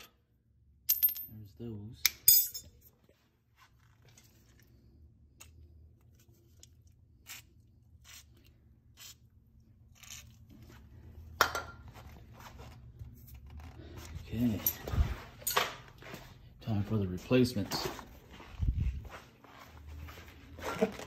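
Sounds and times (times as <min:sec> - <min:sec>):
metal tools clinking: 0:02.1 - 0:02.9, 0:14.4 - 0:15.9.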